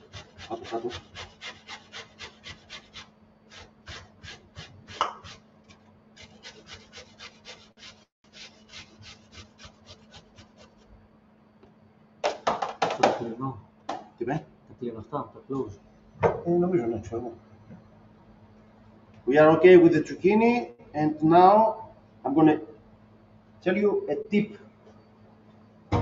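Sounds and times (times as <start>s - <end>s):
zucchini rasping on grater: 0.0s - 10.9s.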